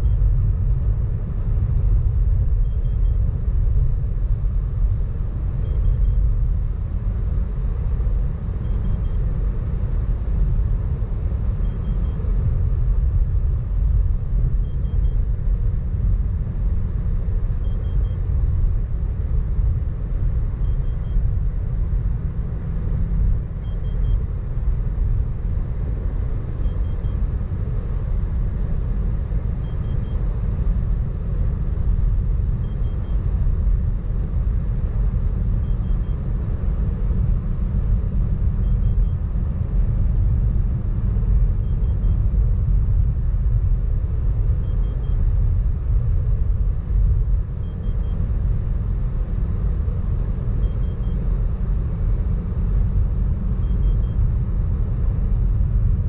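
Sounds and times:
faint double beep: 0:00.0 - 0:00.2, 0:02.6 - 0:03.3, 0:05.6 - 0:06.2, 0:08.6 - 0:09.3, 0:11.6 - 0:12.3, 0:14.6 - 0:15.2, 0:17.5 - 0:18.3, 0:20.6 - 0:21.3, 0:23.6 - 0:24.3, 0:26.6 - 0:27.2, 0:29.6 - 0:30.2, 0:32.6 - 0:33.3, 0:35.6 - 0:36.3, 0:38.6 - 0:39.2, 0:41.6 - 0:42.2, 0:44.6 - 0:45.2, 0:47.6 - 0:48.2, 0:50.6 - 0:51.3, 0:53.6 - 0:54.2.

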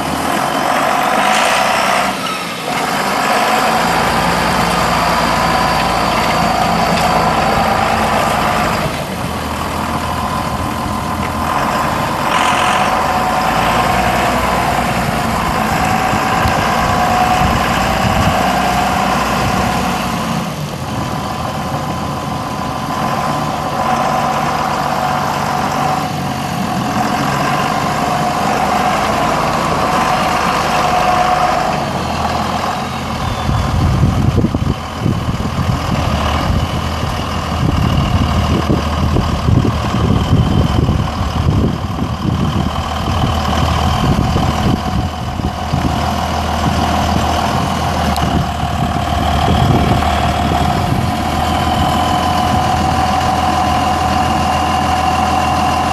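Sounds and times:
tractor diesel engine running: 0:00.0 - 0:55.9.

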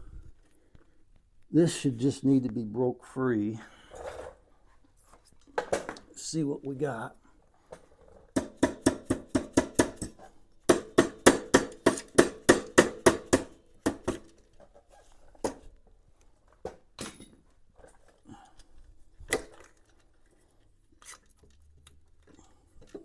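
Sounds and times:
hammer tapping metal: 0:10.7 - 0:14.2.

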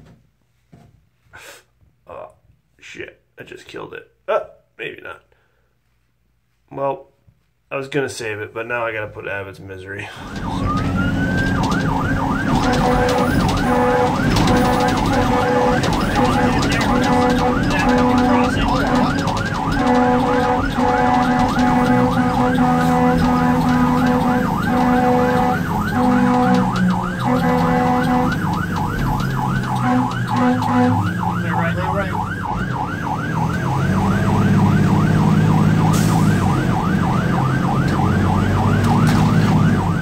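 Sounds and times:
low horn blasts: 0:10.2 - 0:39.8
electronic siren yelping: 0:10.2 - 0:40.0.

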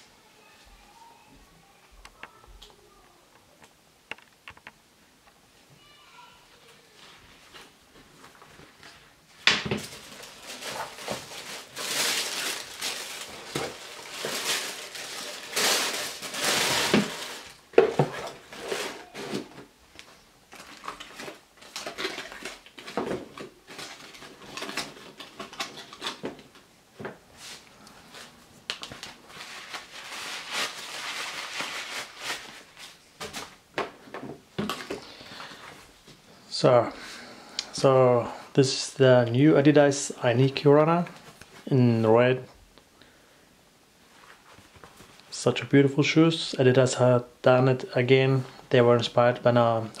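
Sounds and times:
tissue paper rustling: 0:09.8 - 0:19.5, 0:27.4 - 0:33.6.

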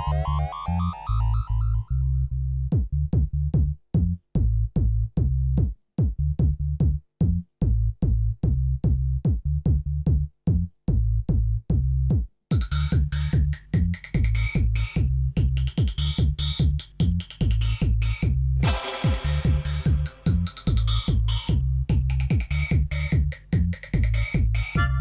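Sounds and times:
bright synth: 0:00.0 - 0:01.8, 0:18.6 - 0:20.8
pulsing bass line: 0:00.0 - 0:25.0
drum machine beat: 0:02.7 - 0:25.0.

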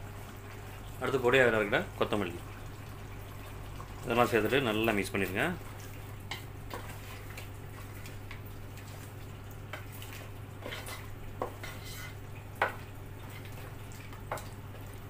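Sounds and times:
spatula stirring thick curry: 0:09.8 - 0:14.5.

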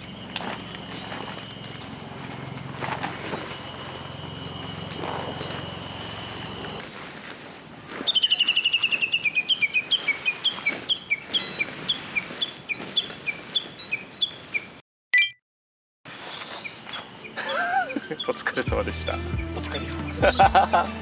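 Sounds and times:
bird chirping: 0:00.0 - 0:02.6, 0:03.2 - 0:15.3, 0:16.3 - 0:20.4
brief tone: 0:00.0 - 0:07.0, 0:15.1 - 0:15.4.

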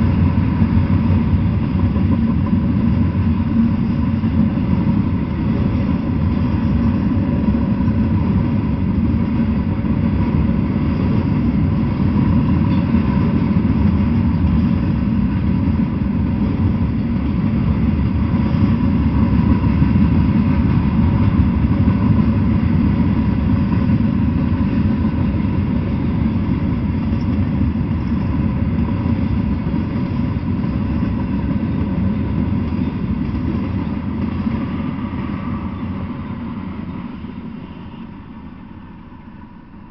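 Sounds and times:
train wheels rumbling on rails: 0:00.0 - 0:39.9.

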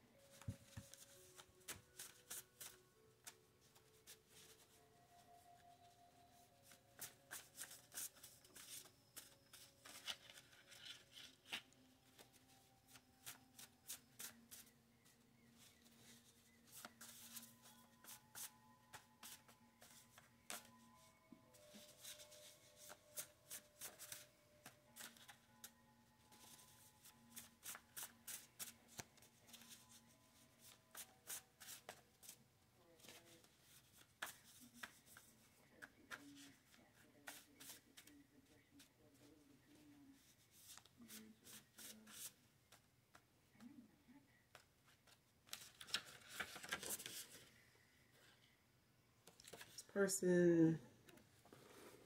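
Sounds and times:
cards being shuffled: 0:44.6 - 0:47.4.

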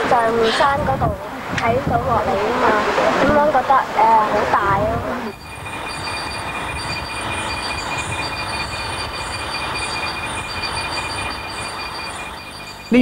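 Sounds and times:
constant hiss: 0:00.0 - 0:13.0
high-pitched insect trills: 0:05.3 - 0:13.0.

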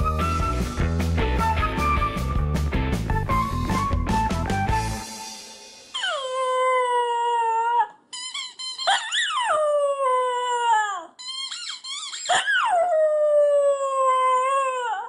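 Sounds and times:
squeaky toy squealing: 0:05.9 - 0:07.0, 0:08.1 - 0:09.8, 0:10.4 - 0:12.9
dog howling: 0:12.3 - 0:15.0.

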